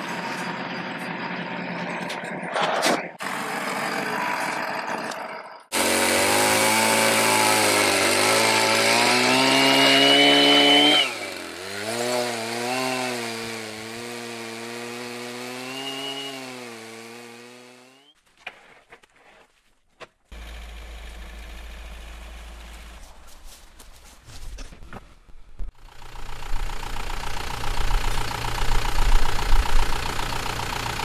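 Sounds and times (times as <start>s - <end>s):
chainsaw cutting log: 2.6s - 18.2s
vehicle engine running: 20.3s - 23.6s, 25.7s - 31.0s.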